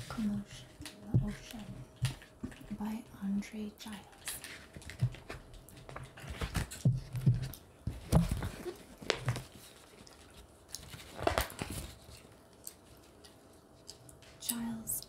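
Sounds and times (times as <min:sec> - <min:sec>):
book pages turned and handled: 0:04.3 - 0:13.4.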